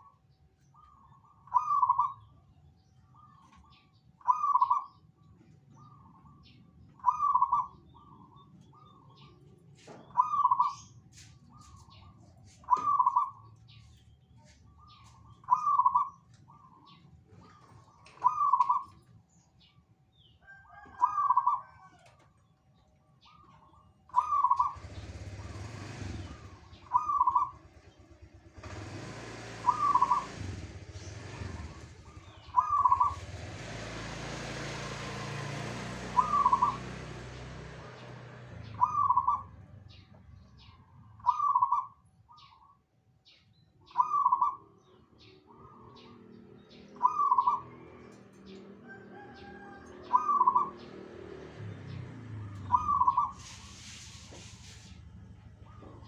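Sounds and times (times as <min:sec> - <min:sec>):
faint high bird chirps: 0:00.0 - 0:22.0
dove cooing: 0:00.8 - 0:02.2, 0:04.2 - 0:05.0, 0:07.0 - 0:09.4, 0:11.6 - 0:13.8, 0:15.4 - 0:19.0, 0:20.5 - 0:22.2, 0:23.3 - 0:29.0, 0:29.6 - 0:33.7, 0:35.8 - 0:37.3, 0:38.7 - 0:39.5, 0:40.6 - 0:42.6, 0:43.9 - 0:44.8, 0:47.0 - 0:48.2, 0:48.8 - 0:50.9, 0:52.6 - 0:53.7.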